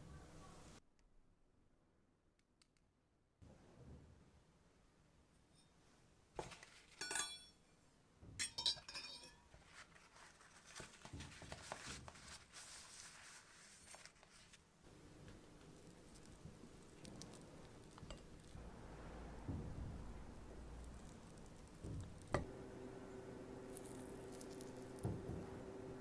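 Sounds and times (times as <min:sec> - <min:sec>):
paper towel rustling: 0:09.6 - 0:14.8.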